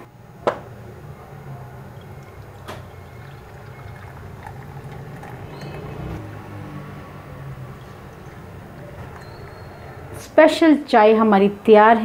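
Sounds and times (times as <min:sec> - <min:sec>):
tea pouring into a cup: 0:01.8 - 0:06.2.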